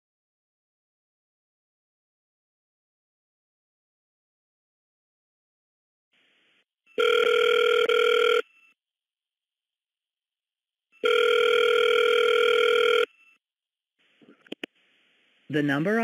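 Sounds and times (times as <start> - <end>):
telephone ringing tone: 6.9 - 8.8, 11.0 - 13.4.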